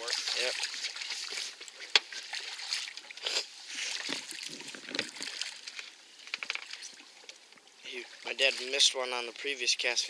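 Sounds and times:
fish splashing in water: 0.0s - 5.9s.

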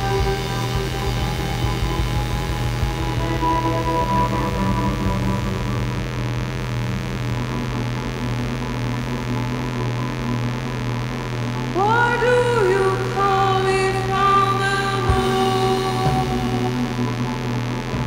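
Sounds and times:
steady low hum: 0.0s - 18.0s
synthesizer drone: 0.0s - 18.0s
synthesizer note sliding up: 0.0s - 18.0s.

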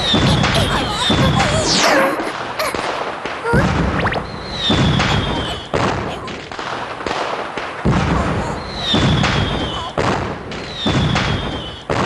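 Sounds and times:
deep booming thuds: 3.6s - 6.8s, 7.8s - 12.0s.

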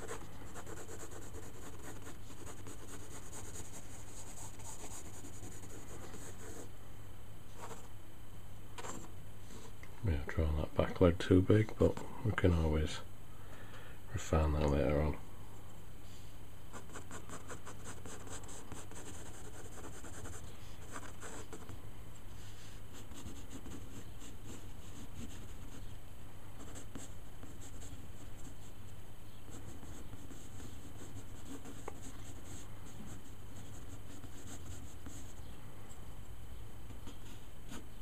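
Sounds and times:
pencil scratching on paper: 0.0s - 6.7s, 16.8s - 21.7s, 29.5s - 35.4s
steady low hum: 0.0s - 38.0s.

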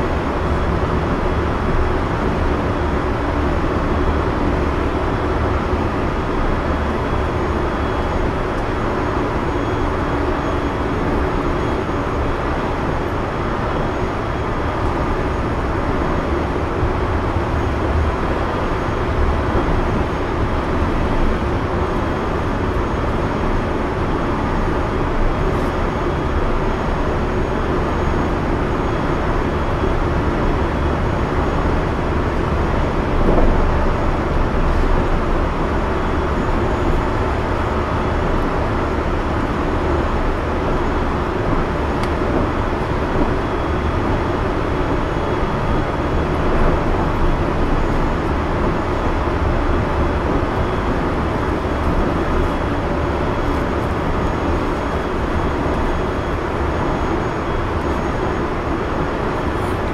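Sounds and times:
train wheels rumbling on rail: 0.0s - 59.9s
train bump: 33.2s - 34.0s.

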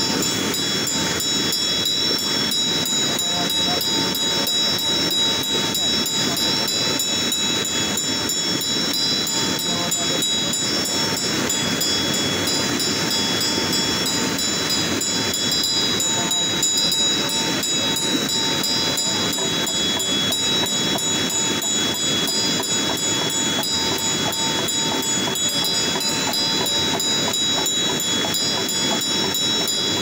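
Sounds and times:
hand bell ringing: 0.0s - 30.0s.

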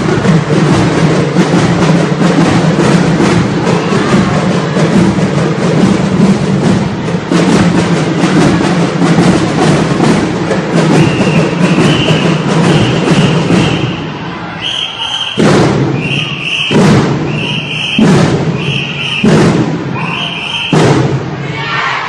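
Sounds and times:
drumline playing: 0.0s - 22.0s
heavy unison drum hits: 15.4s - 16.0s, 16.7s - 17.3s, 18.0s - 20.0s.

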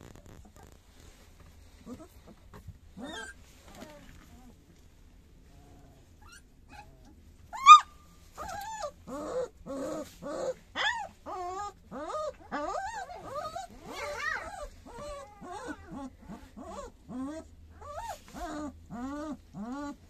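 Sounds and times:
puppies whimpering and crying: 1.6s - 4.6s, 6.2s - 20.0s
puppy yelp: 3.0s - 4.6s, 6.2s - 20.0s.

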